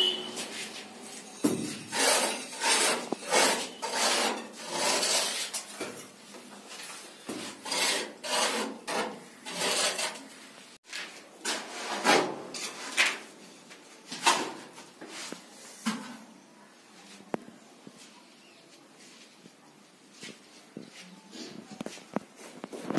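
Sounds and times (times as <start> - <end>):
tool rasping over plaster: 1.8 - 5.7, 7.5 - 10.2.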